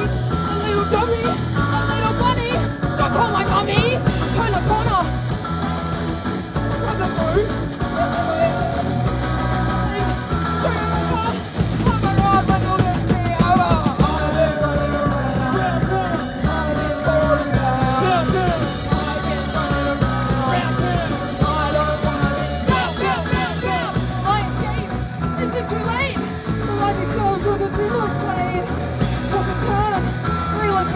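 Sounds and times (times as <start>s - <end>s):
bass guitar: 0.0s - 30.9s
drums: 0.0s - 30.9s
electric guitars: 0.0s - 30.9s
person singing into microphone: 7.9s - 25.5s.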